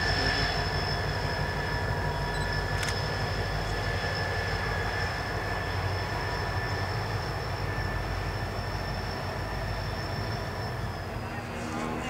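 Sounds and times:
diesel locomotive rumbling: 0:00.0 - 0:12.0.

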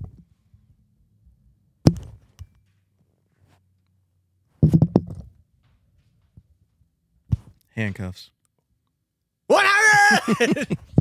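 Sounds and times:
handling knocks and thumps: 0:04.6 - 0:06.5.

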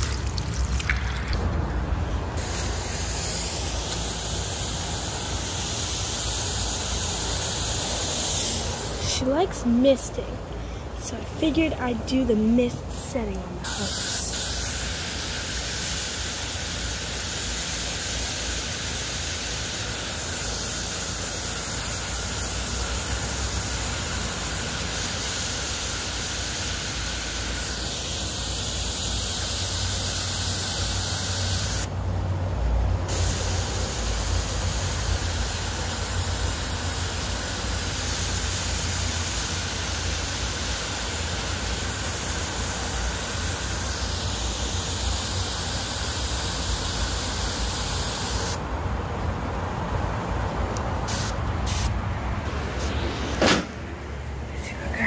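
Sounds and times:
hose nozzle spraying mist: 0:02.4 - 0:09.3, 0:13.6 - 0:31.9, 0:33.1 - 0:48.6, 0:51.0 - 0:52.0.

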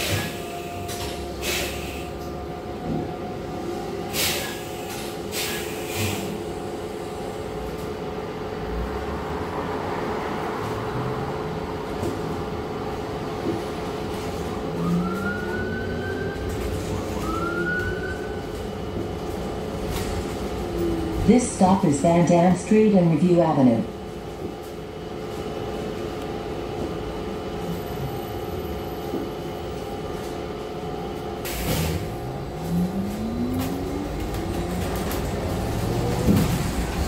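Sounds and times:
bus engine and road noise: 0:00.0 - 0:37.0
rising engine whine: 0:14.2 - 0:22.0, 0:26.0 - 0:37.0.

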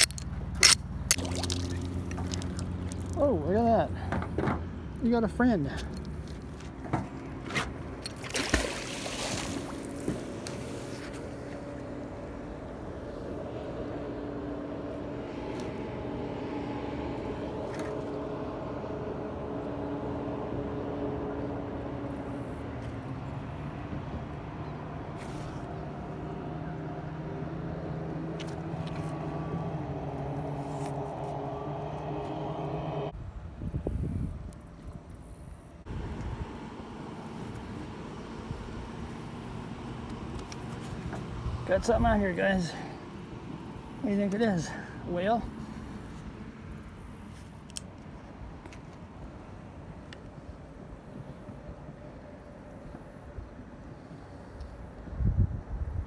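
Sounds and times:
low motor hum: 0:00.0 - 0:56.0
magnet splashing into water: 0:00.6 - 0:03.1, 0:08.1 - 0:10.0.

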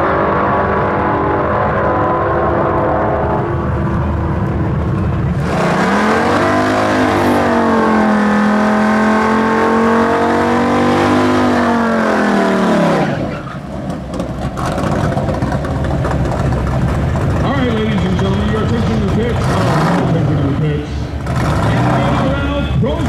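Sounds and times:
drag car engine revving: 0:00.0 - 0:23.0.

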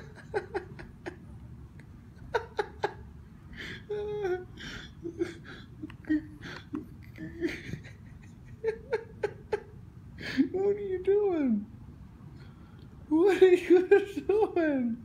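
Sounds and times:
stifled human laughter: 0:00.0 - 0:10.5.

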